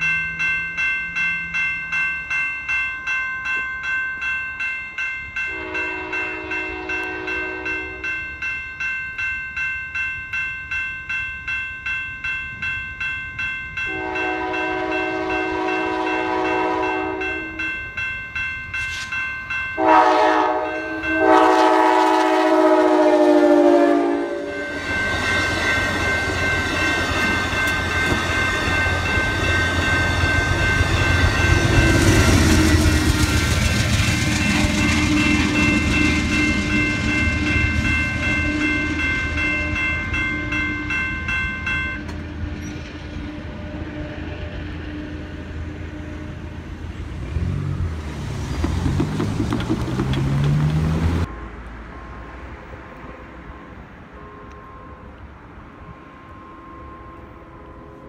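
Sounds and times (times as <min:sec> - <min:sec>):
crossing warning bell ringing: 0:00.0 - 0:58.0
train horn blasts: 0:05.5 - 0:08.2, 0:13.9 - 0:17.7, 0:19.8 - 0:24.8, 0:34.2 - 0:41.0, 0:41.9 - 0:47.6, 0:53.4 - 0:58.0
train cars rumbling on rails: 0:12.5 - 0:58.0.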